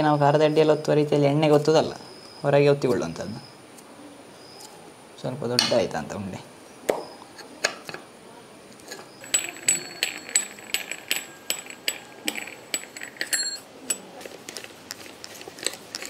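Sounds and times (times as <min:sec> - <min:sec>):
metallic clicks and clinks: 0:08.9 - 0:16.0.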